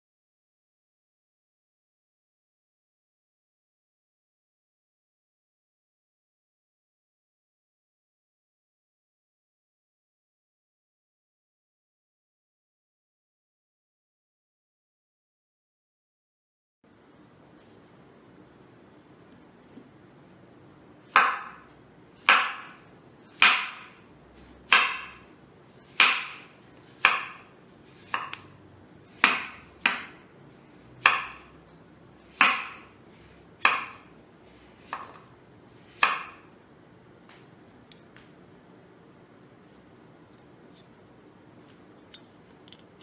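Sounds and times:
knife chopping papaya: 21.0s - 31.6s, 32.2s - 36.5s.

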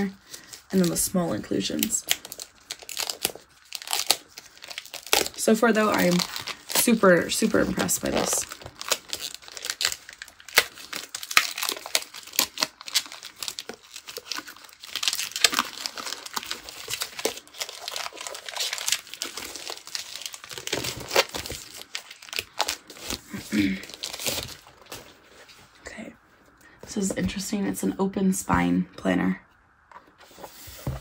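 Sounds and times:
packaging crinkling and rustling: 0.0s - 25.8s.

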